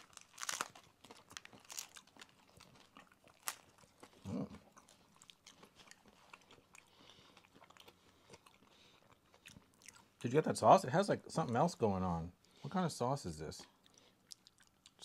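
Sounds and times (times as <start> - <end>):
people chewing crisp tostada shells: 0.0 - 10.4, 13.6 - 15.0.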